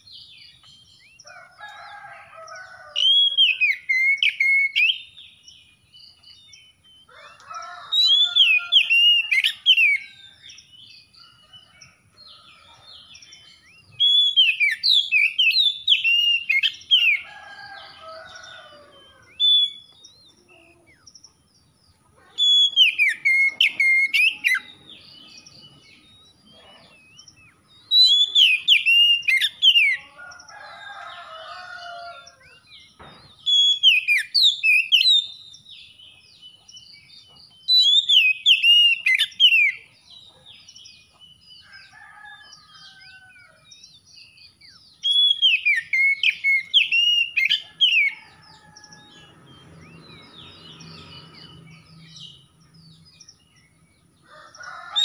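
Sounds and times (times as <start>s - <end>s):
bird singing whistled phrases: 27.9s - 29.8s, 33.5s - 35.3s, 45.0s - 47.6s.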